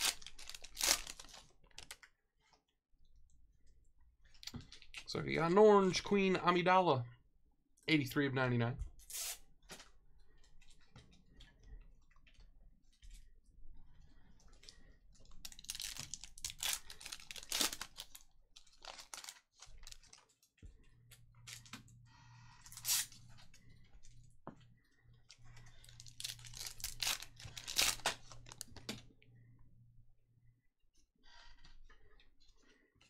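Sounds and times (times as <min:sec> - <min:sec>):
foil wrapper crinkle: 0:00.0 - 0:02.1, 0:15.4 - 0:20.5, 0:25.8 - 0:28.8.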